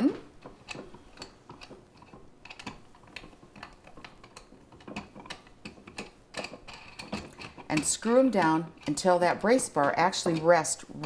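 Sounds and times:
wing nuts clicking on metal rods: 0.4s - 11.0s.

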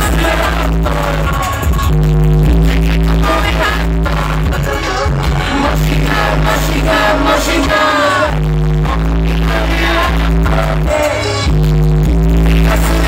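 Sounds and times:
person singing: 0.0s - 11.5s
heavy bass backing track: 0.0s - 13.0s.

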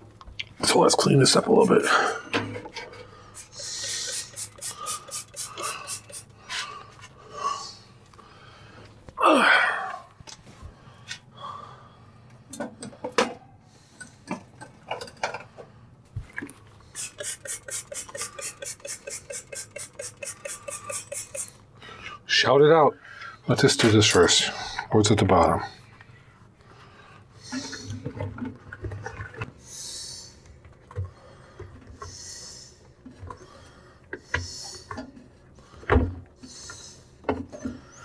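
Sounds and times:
rubbing and scrubbing strokes: 1.4s - 2.3s, 3.4s - 6.3s, 17.0s - 21.6s
person grunting: 9.2s - 10.0s.

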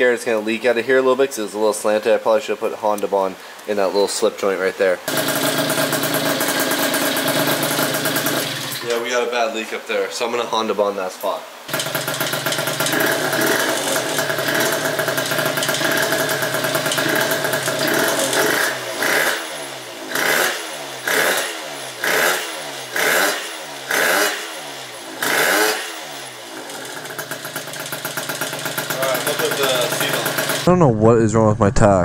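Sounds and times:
scooter engine idling and revving: 5.1s - 8.8s, 11.7s - 30.7s
exhaust leak: 5.1s - 8.9s, 11.7s - 30.7s.

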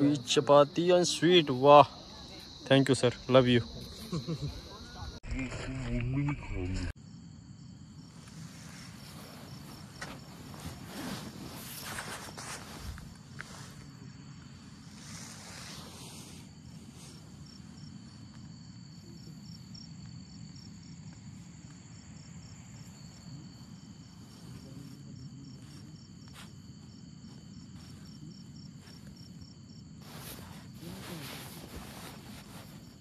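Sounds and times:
crickets chirping: 0.0s - 33.0s
rustle: 8.1s - 18.4s, 30.0s - 33.0s.

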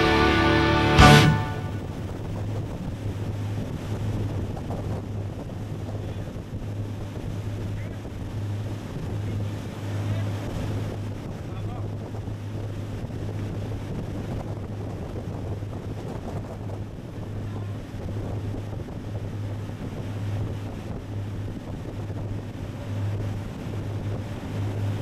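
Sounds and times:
motorboat engine drone: 0.0s - 25.0s
wind buffeting the microphone: 1.7s - 25.0s
wake and spray rushing: 12.0s - 25.0s.

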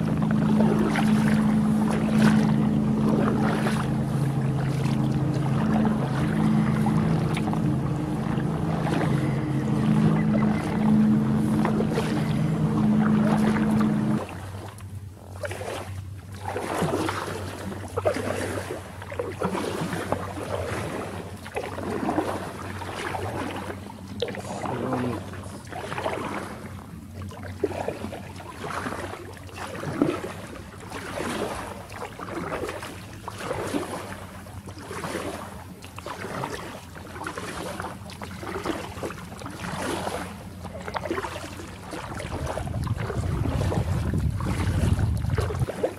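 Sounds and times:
loud steady hum: 0.0s - 15.4s
paddle strokes splashing: 0.0s - 45.9s.

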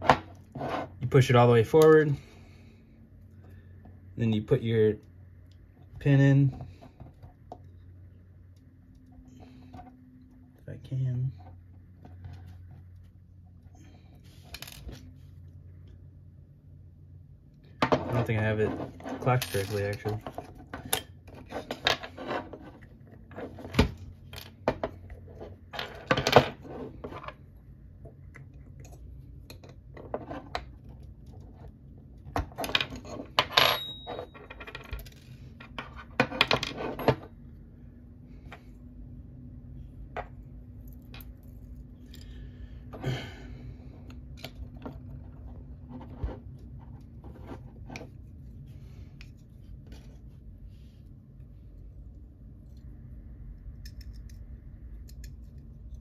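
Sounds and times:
small metal parts clicking: 53.6s - 56.0s.

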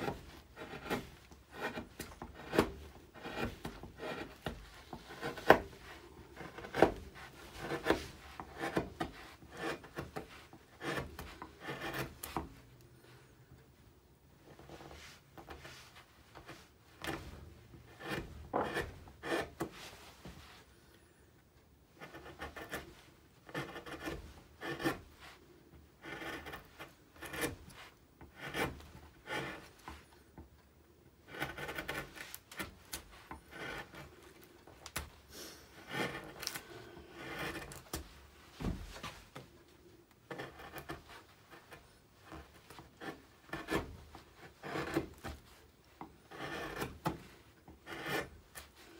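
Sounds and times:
gouge scraping wood: 0.0s - 12.6s, 14.4s - 20.6s, 21.9s - 30.4s, 31.2s - 39.6s, 40.2s - 48.9s.

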